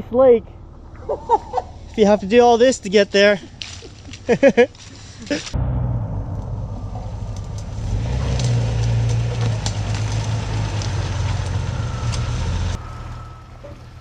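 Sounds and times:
car engine running at low speed: 5.6 - 14.0
tyres cracking over dirt track: 7.3 - 14.0.

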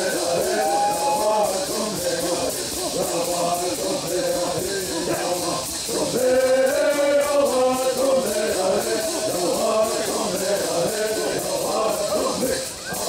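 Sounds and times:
gourd rattles shaken: 0.0 - 13.0
group of men singing: 0.0 - 13.0.

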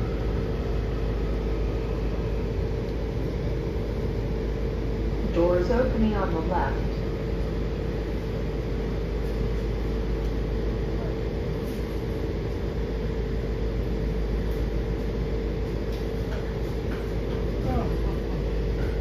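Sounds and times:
train car hum and rumble: 0.0 - 19.0.

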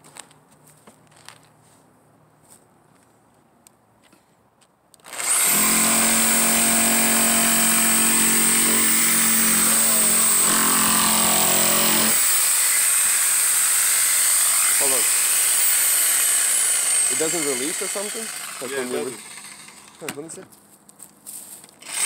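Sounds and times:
jigsaw motor running: 5.1 - 20.0
jigsaw blade cutting wood: 5.1 - 20.2, 21.8 - 22.0.

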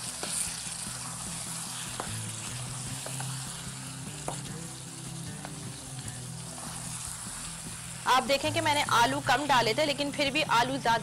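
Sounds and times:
spatula stirring: 0.0 - 10.4
food sizzling in a pan: 0.0 - 11.0.

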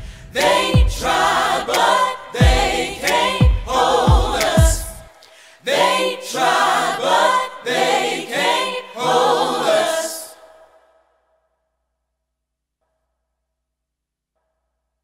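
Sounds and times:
deep thumping beat: 0.0 - 5.1
choir singing: 0.3 - 10.8.

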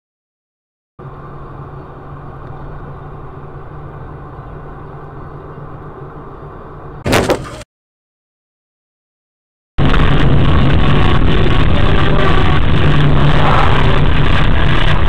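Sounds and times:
car engine hum: 1.0 - 7.0
road noise: 1.0 - 7.6, 9.8 - 15.0
sudden loud noise: 9.8 - 15.0.

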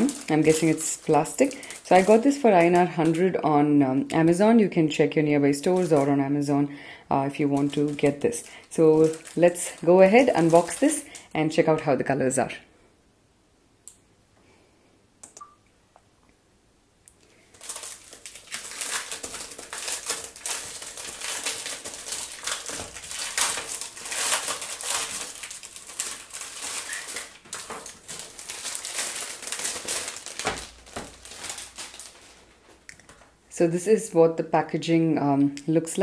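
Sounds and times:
plastic wrapping tearing and crinkling: 0.0 - 3.4, 5.6 - 6.1, 7.3 - 11.3, 17.2 - 33.2.

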